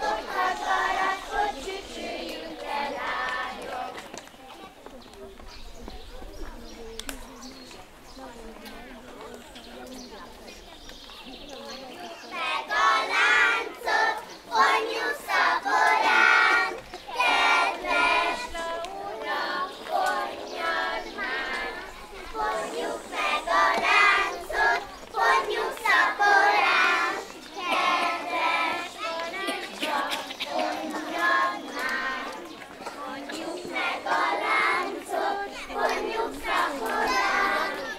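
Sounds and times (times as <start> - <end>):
children singing in chorus: 0.0 - 4.2, 12.3 - 37.9.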